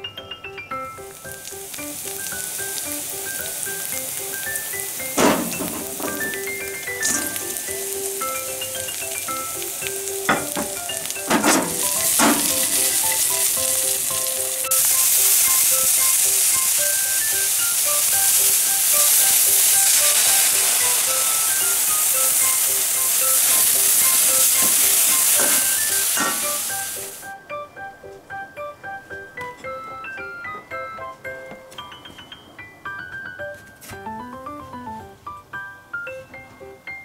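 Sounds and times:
bean sprouts sizzling in a wok: 1.0 - 27.4
ladle knocking on a pan: 5.2 - 7.6, 10.3 - 13.0.

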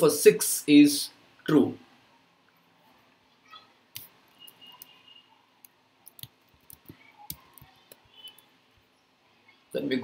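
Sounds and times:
keyboard and mouse clicks: 5.6 - 8.5.

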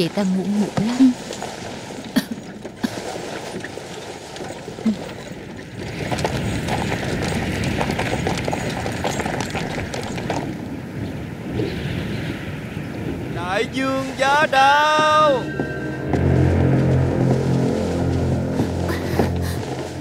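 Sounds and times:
hooves clopping: 0.0 - 10.8
carriage rumble: 0.7 - 10.8.

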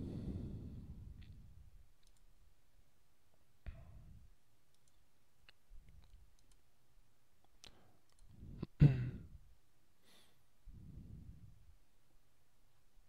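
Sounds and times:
computer mouse clicks: 2.0 - 2.3, 4.7 - 6.7, 7.4 - 8.4.

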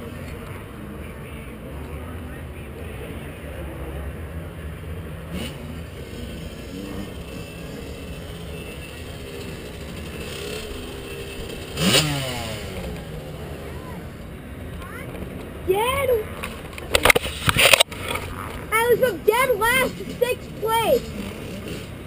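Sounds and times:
motocross bike engine revving: 3.7 - 14.4, 15.1 - 22.0.

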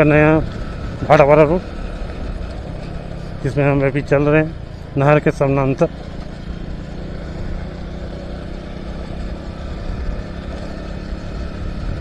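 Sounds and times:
motorcycle engine running: 0.0 - 12.0
wind rumble on microphone: 11.3 - 12.0.

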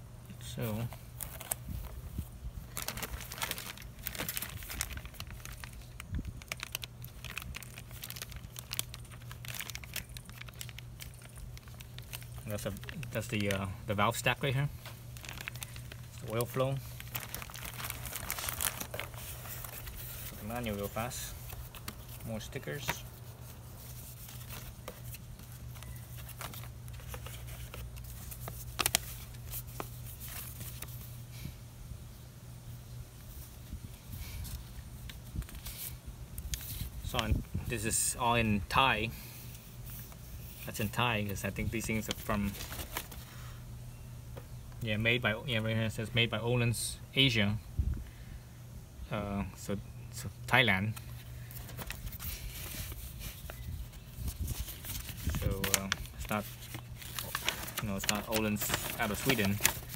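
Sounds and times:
steady low hum: 0.0 - 59.9
plastic bag crinkling: 1.1 - 31.0, 40.6 - 43.4, 50.9 - 59.9.

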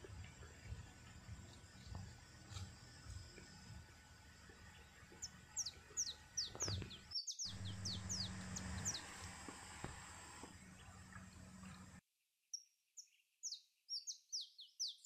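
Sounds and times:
bird chirping: 4.5 - 9.4, 12.5 - 15.0.

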